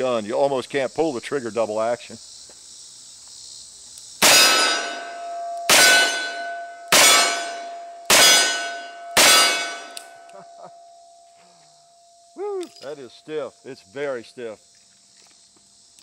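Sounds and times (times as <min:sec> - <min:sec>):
steel target ringing: 0:04.2 - 0:13.1.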